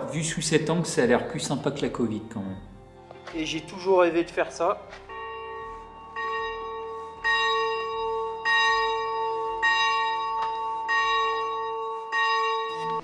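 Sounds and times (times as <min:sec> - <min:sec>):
chapel bell ringing: 0:05.1 - 0:13.0.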